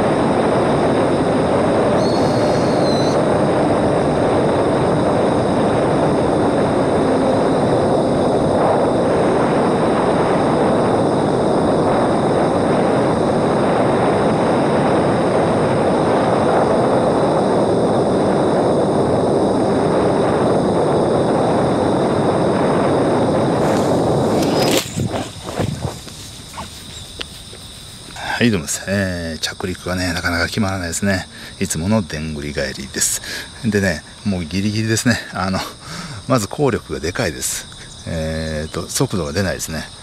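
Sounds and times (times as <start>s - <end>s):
airflow and propeller noise: 0.0s - 40.0s.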